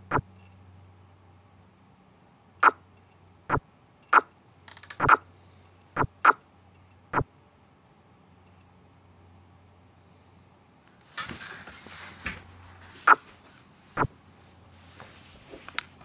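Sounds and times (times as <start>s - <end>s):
faint low hum: 0.0s - 16.0s
rattle of small ticks: 4.7s - 5.2s.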